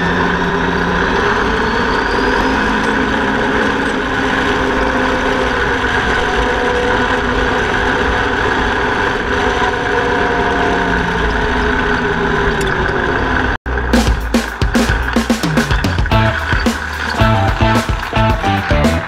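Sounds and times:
single-cylinder engine running: 0.0 - 19.0
tyres on gravel road: 0.0 - 19.0.

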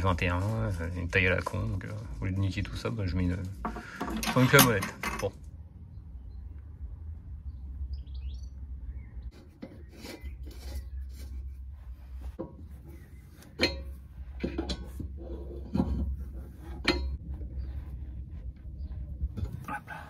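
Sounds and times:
wrench clinking and scraping metal: 3.6 - 5.5, 9.3 - 11.5, 13.4 - 17.5.

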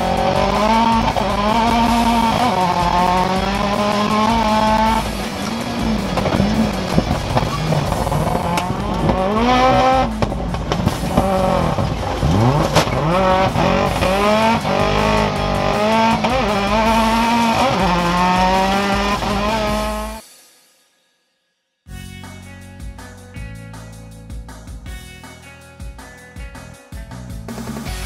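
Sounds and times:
racing car engine revving: 0.0 - 20.2.

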